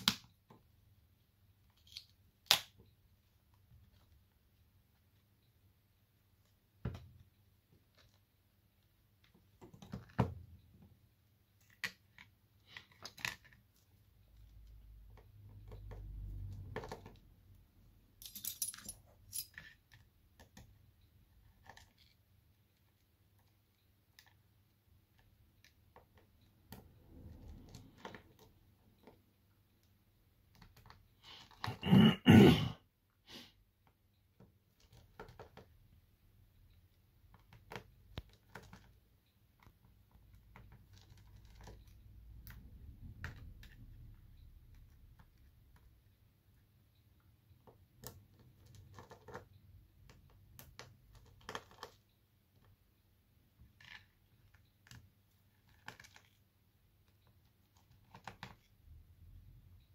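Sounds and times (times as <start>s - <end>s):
small tools clicking and clattering: 18.2s - 20.0s.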